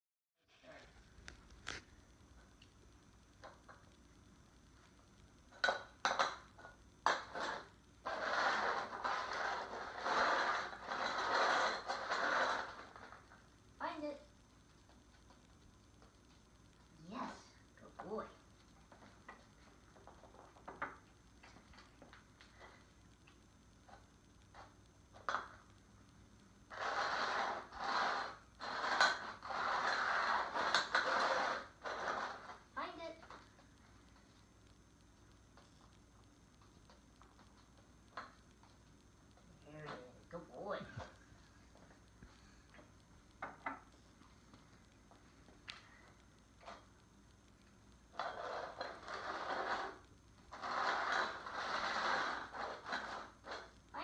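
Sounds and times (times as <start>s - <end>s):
pots scraping across wooden floor: 5.6s - 13.5s, 26.7s - 33.6s, 48.1s - 53.8s.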